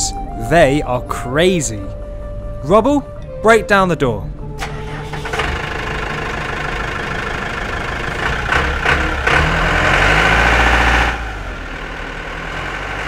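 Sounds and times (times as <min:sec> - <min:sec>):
bulldozer engine running: 0:04.4 - 0:13.0.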